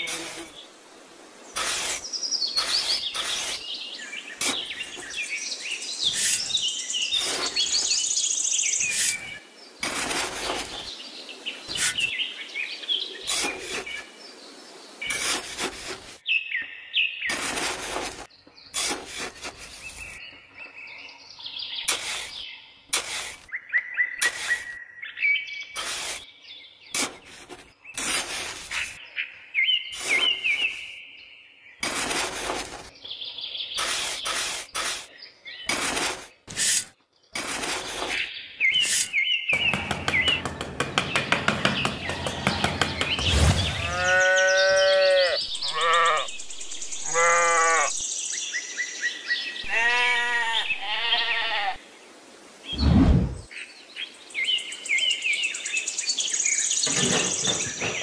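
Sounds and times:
small birds chirping: 1.4 - 58.0
hand trowel digging into sand: 1.6 - 5.2, 6.1 - 8.0, 8.8 - 10.9, 11.7 - 12.1, 13.3 - 14.0, 15.0 - 16.2, 17.3 - 20.2, 21.8 - 23.5, 24.2 - 24.8, 25.8 - 26.3, 26.9 - 29.0, 30.0 - 30.8, 31.8 - 32.9, 33.8 - 35.1, 35.7 - 44.1.

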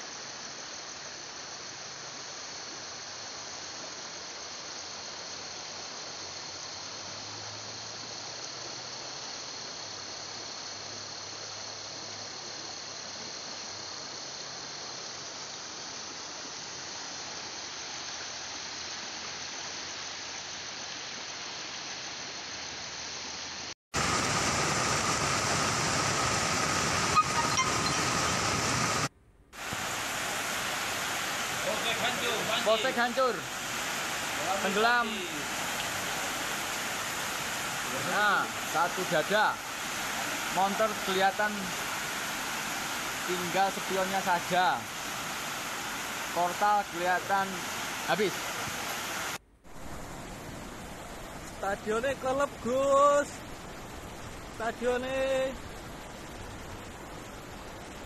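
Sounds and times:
flooded river rushing: 24.0 - 58.0.

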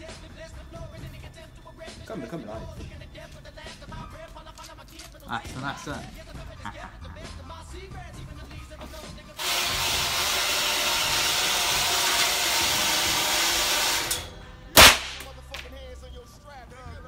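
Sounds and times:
rifle shot ringing indoors: 13.2 - 15.7.

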